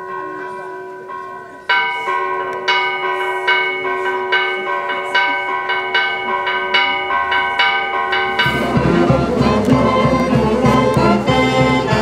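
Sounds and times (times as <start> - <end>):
church bells ringing rapidly: 0.0 - 12.0
band music: 7.2 - 12.0.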